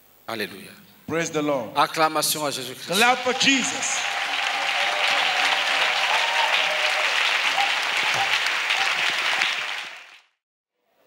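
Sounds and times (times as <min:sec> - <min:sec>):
congregation clapping: 0:02.9 - 0:10.4.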